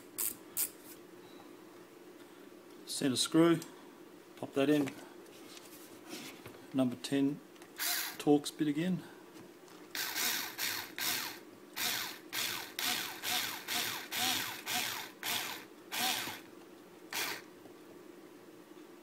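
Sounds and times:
electric screwdriver whirring bursts: 7.8 - 8.2, 10.0 - 16.5, 17.1 - 17.5.

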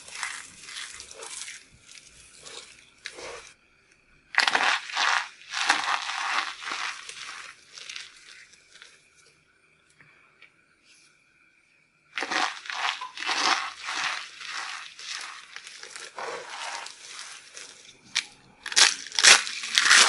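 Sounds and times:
hands crushing crunchy soap: 0.0 - 3.6, 4.4 - 8.9, 12.2 - 20.0.

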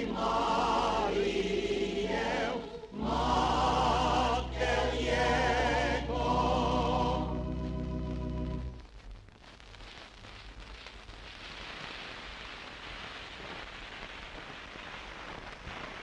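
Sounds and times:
choir and orchestra chord: 0.0 - 8.8
vinyl crackle and hiss: 0.0 - 16.0.

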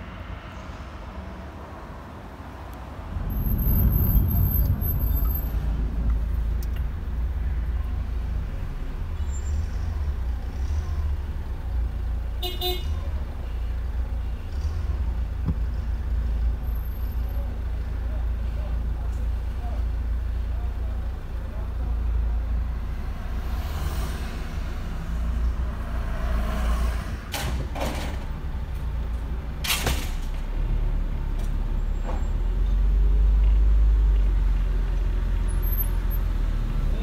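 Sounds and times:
motor vehicle rumble: 0.0 - 37.0
vehicle horn toot: 12.4 - 13.0.

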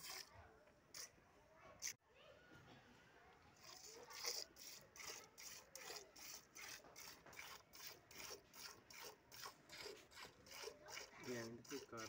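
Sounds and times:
milk squirting into steel pot: 3.6 - 12.0.

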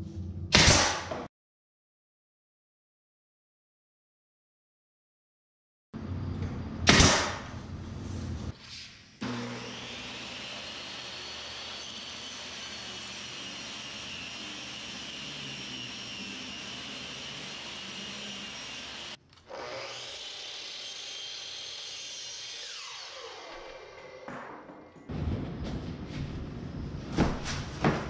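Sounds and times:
power saw cutting wood: 9.2 - 24.3.

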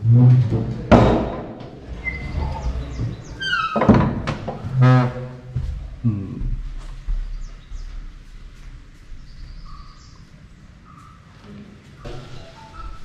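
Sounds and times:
door knocks: 0.9 - 1.7
wooden door thunk: 0.9 - 1.7, 3.8 - 4.6
door squeak: 1.8 - 5.4.

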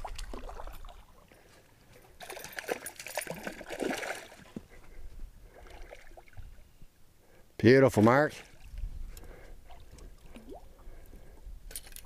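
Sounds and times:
fish splashing in water: 2.2 - 4.6.

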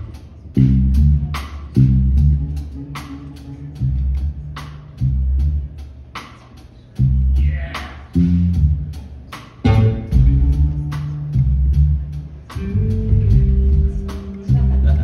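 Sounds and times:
electric bass phrases: 0.0 - 15.0.

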